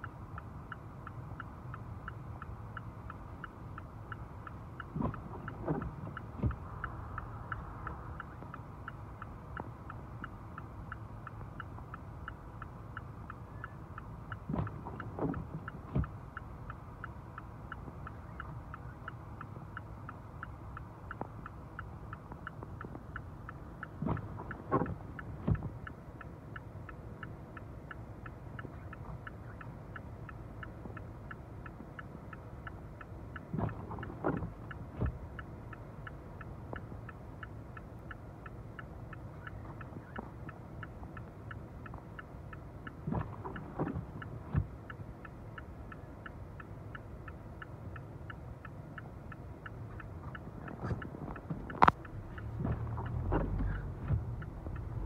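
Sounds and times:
car engine idling: 0:00.0 - 0:55.0
car indicator ticking: 0:00.0 - 0:55.0
road noise: 0:00.0 - 0:55.0
windscreen wiper sweeps: 0:04.9 - 0:06.9, 0:14.5 - 0:16.2, 0:24.0 - 0:25.8, 0:33.5 - 0:35.3, 0:42.9 - 0:44.8, 0:49.9 - 0:55.0.

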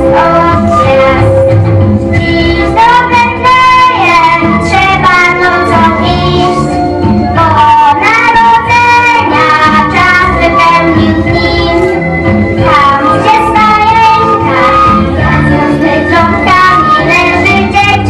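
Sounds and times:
instrumental backing music: 0:00.0 - 0:18.0
young voices singing: 0:12.6 - 0:18.0.

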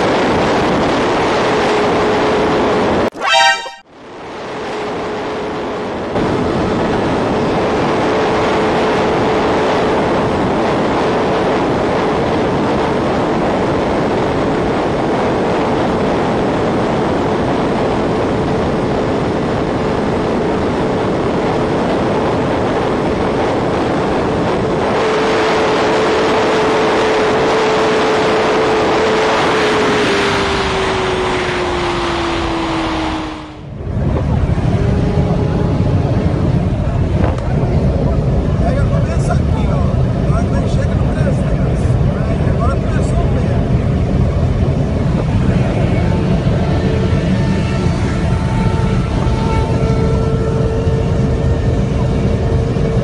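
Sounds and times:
heavy wind noise: 0:00.0 - 0:53.0
motorcycle engine at high revs: 0:24.6 - 0:37.4.

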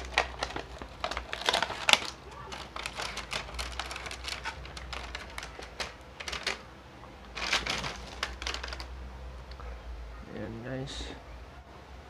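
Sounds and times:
plastic packaging crinkling: 0:00.0 - 0:09.0.

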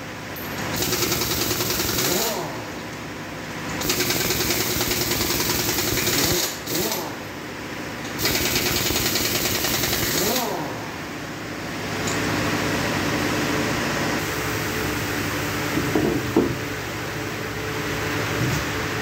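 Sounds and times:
steady machine hum: 0:00.0 - 0:19.0
impact wrench spinning: 0:00.6 - 0:02.4, 0:03.8 - 0:07.2, 0:08.2 - 0:10.6
knocks: 0:15.8 - 0:16.6.

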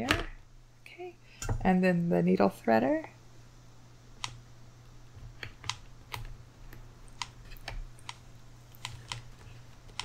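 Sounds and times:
light irregular clicks and taps: 0:04.2 - 0:04.4.

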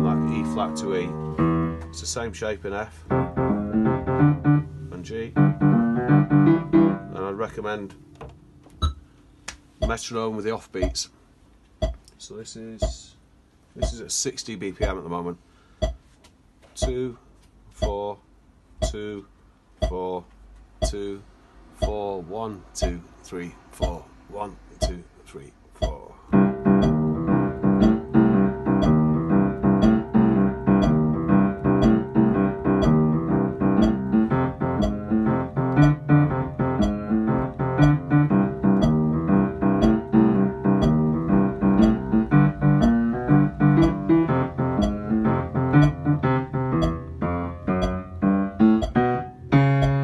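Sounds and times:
boogie-woogie piano bass riff: 0:00.0 - 0:08.2, 0:26.3 - 0:50.0
metronome clicking: 0:08.8 - 0:10.0, 0:10.8 - 0:11.0, 0:11.8 - 0:12.1, 0:12.8 - 0:13.0, 0:13.8 - 0:14.0, 0:16.8 - 0:17.1, 0:17.8 - 0:18.0, 0:18.8 - 0:19.1, 0:19.8 - 0:20.0, 0:20.8 - 0:21.1, 0:21.8 - 0:22.0, 0:22.8 - 0:23.0, 0:24.8 - 0:25.0, 0:25.8 - 0:50.0.

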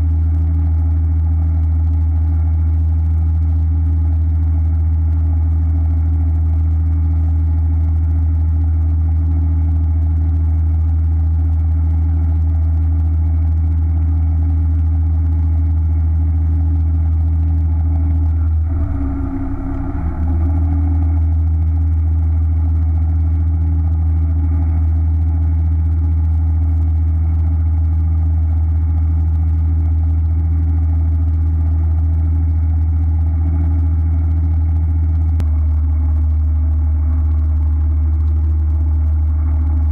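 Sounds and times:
boat engine idling: 0:18.4 - 0:21.9.

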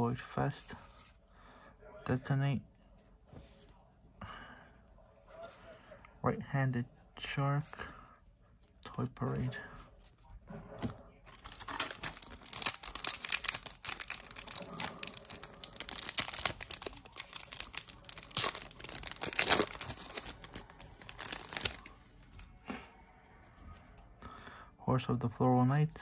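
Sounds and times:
foil wrapper tearing and crinkling: 0:11.3 - 0:21.9.

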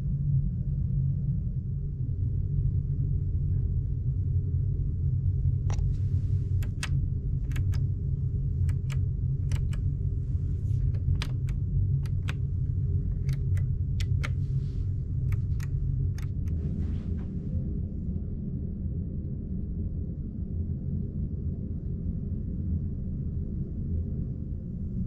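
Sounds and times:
low machinery rumble: 0:00.0 - 0:25.0
push-button light switches clicking: 0:05.7 - 0:05.9, 0:06.6 - 0:07.9, 0:08.6 - 0:09.9, 0:10.6 - 0:16.6.

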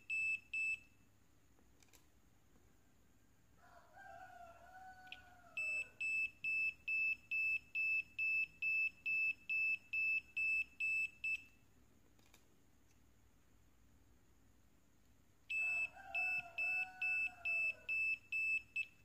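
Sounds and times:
click: 0:01.8 - 0:02.1, 0:05.0 - 0:05.3, 0:11.4 - 0:13.0.

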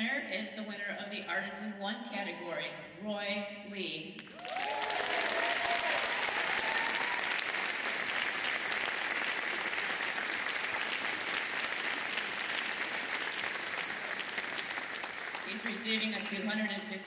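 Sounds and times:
audience applauding: 0:04.2 - 0:16.9.

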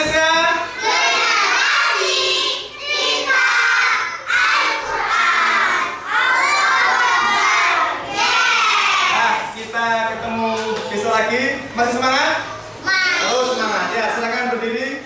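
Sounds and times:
children shouting a chant: 0:00.7 - 0:09.3.

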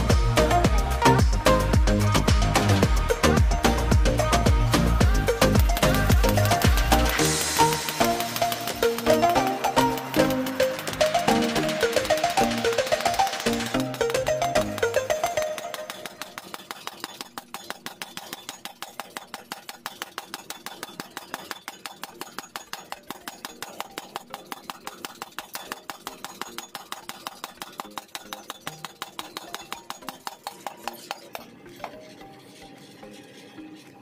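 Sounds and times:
power hammer striking hot steel: 0:05.1 - 0:32.1.

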